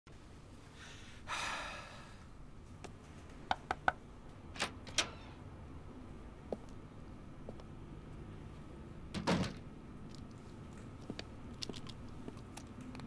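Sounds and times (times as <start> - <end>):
door opening clicks: 4.6 - 5.4.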